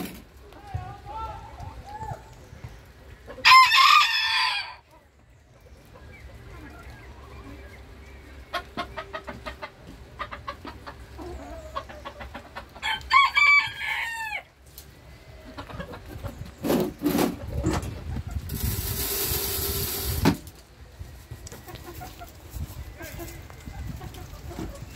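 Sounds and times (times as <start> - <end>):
chickens clucking: 1.4 - 24.9
rooster crowing: 3.4 - 4.9, 12.8 - 14.5.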